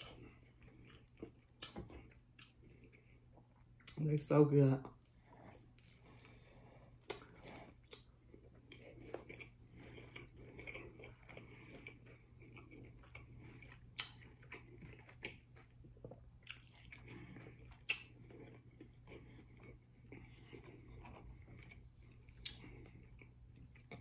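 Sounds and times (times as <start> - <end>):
chewing crunchy taco: 0.0 - 4.1, 4.8 - 24.0
sharp taco crunches: 13.9 - 15.0.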